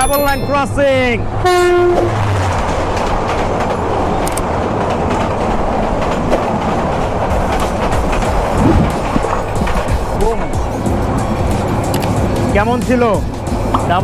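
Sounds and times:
trains passing rumble: 0:00.0 - 0:14.0
train horn blaring: 0:01.4 - 0:02.2
train wheel clatter: 0:01.8 - 0:14.0.

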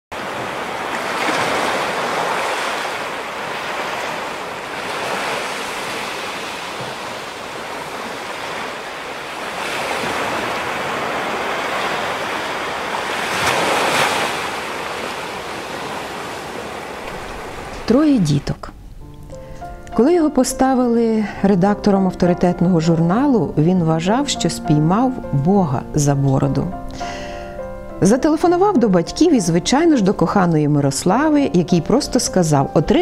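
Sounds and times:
waves breaking on beach: 0:00.1 - 0:18.4.

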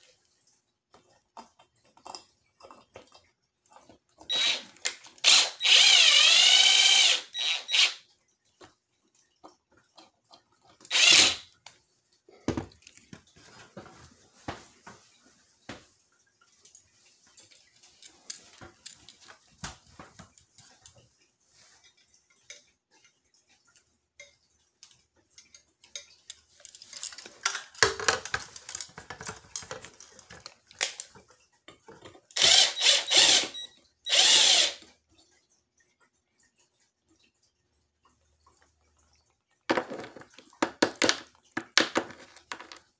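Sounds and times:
cordless drill driving screws: 0:04.3 - 0:08.0, 0:10.9 - 0:11.5, 0:32.4 - 0:34.8
clicks and rattles of parts: 0:25.8 - 0:31.2, 0:39.7 - 0:42.9.

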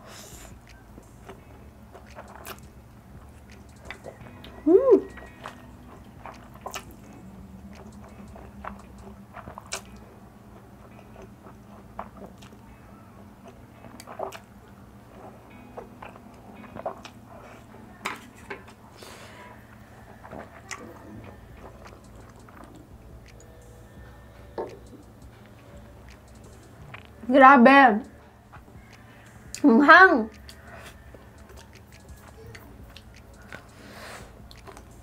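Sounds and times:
noodles slurped and chewed: 0:00.0 - 0:04.4, 0:05.0 - 0:27.2, 0:30.3 - 0:35.0
wet mouth smacks: 0:02.0 - 0:02.8, 0:07.7 - 0:10.0, 0:30.3 - 0:30.6, 0:34.5 - 0:34.9.

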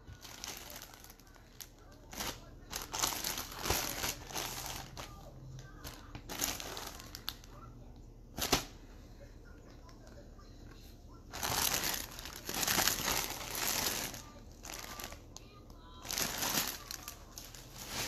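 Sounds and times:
plastic bag crinkling: 0:00.0 - 0:07.6, 0:11.3 - 0:18.0.

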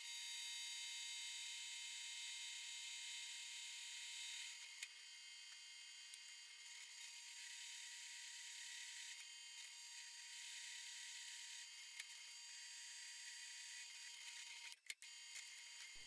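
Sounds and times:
small clicks: 0:14.1 - 0:16.0.

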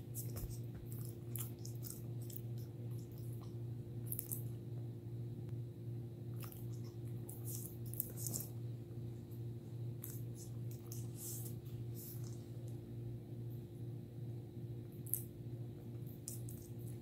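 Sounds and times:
puppy chewing on a stick: 0:00.0 - 0:04.5
steady low hum: 0:00.0 - 0:17.0.

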